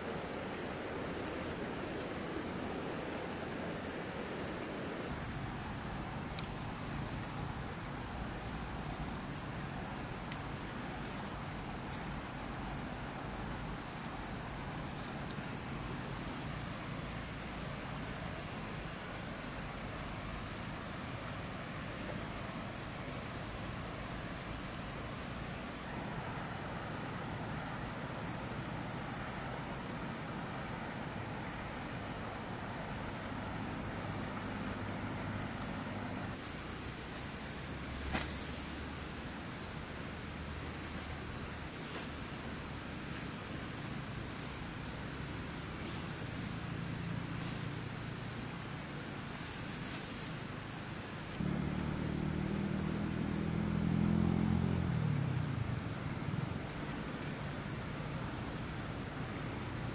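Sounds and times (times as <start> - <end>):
insects droning: 0.0 - 59.9
low engine-like hum: 51.4 - 59.9.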